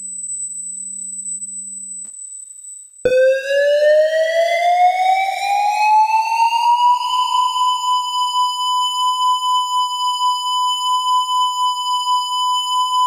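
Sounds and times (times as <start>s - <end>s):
electronic siren wailing: 3.1s - 13.0s.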